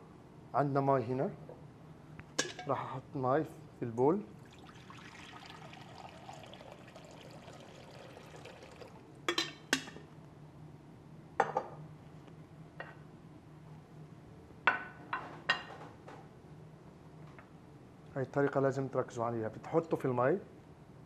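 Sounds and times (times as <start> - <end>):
glassware and dishes clinking: 2.4 - 2.8, 8.4 - 10.0
water poured into glass bowl: 4.4 - 9.0.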